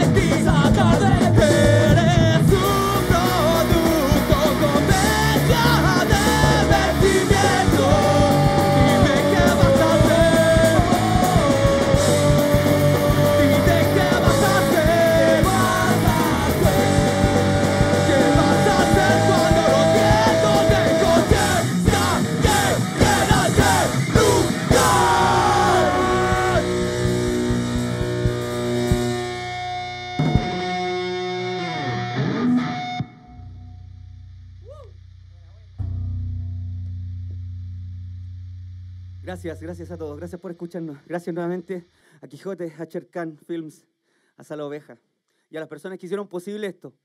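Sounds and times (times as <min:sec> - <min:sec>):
live rock band playing: 0:00.0 - 0:34.4
hard drum hits: 0:30.2 - 0:30.9.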